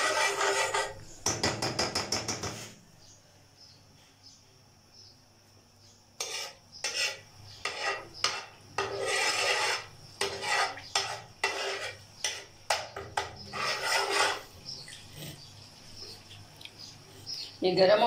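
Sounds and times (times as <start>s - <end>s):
metal spatula scraping pan: 0.0s - 1.0s, 6.2s - 14.5s.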